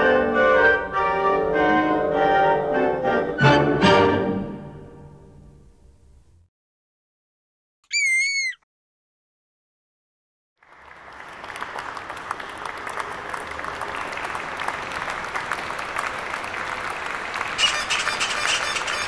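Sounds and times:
audience applause: 0:10.6 - 0:19.0.

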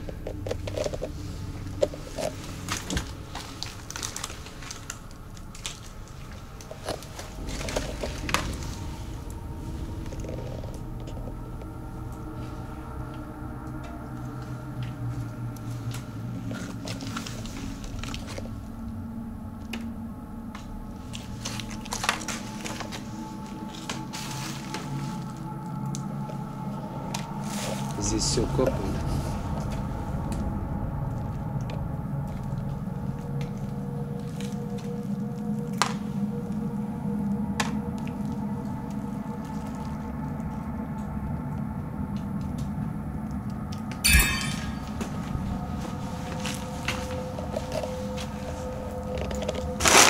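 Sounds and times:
footsteps crunching over wet rubble: 0:00.0 - 0:09.0
low steady rumble: 0:00.0 - 0:28.0.

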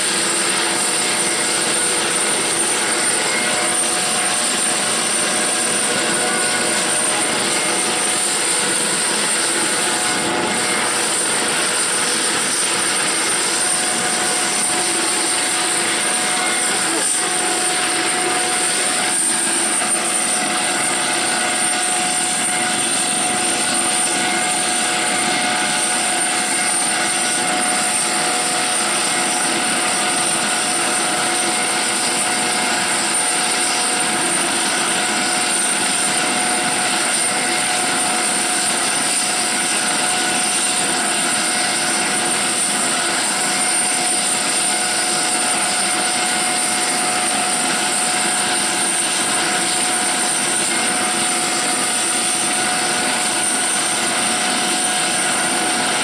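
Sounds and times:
rotor rushing noise: 0:00.0 - 0:28.0
helicopter turbine whine: 0:00.0 - 0:56.0.

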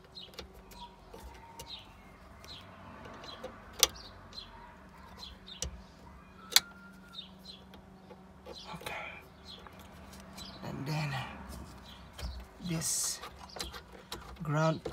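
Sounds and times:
small birds chirping: 0:00.0 - 0:14.9.

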